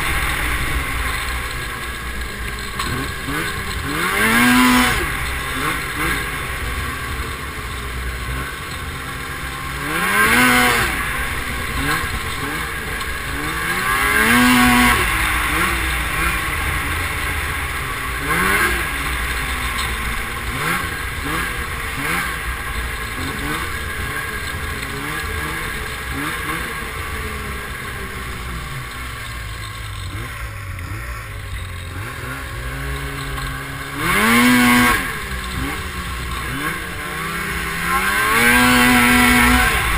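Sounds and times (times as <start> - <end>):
snowmobile engine revving: 0.0 - 39.9.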